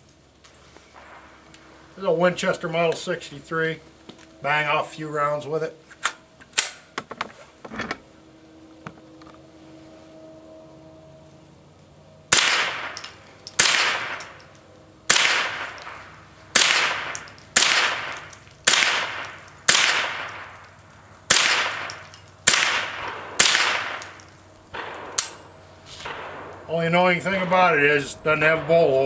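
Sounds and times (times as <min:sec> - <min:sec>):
rifle shots: 0:12.3 - 0:14.5, 0:15.1 - 0:29.0.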